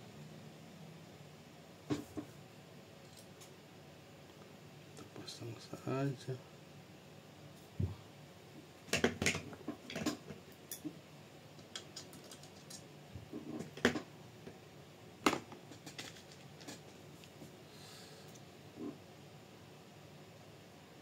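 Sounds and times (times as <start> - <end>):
small parts clicking and tapping: 11.6 - 12.9, 15.2 - 17.3.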